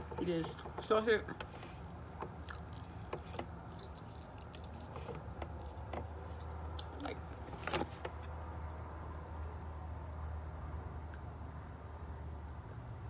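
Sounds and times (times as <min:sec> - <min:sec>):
chewing and crackles of food: 0:00.0 - 0:08.9.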